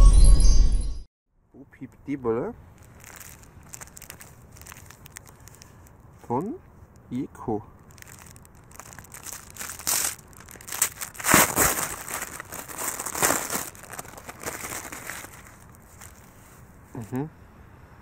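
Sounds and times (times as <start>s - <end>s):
paper wrapper tearing and crinkling: 2.7s - 5.9s, 7.8s - 16.6s.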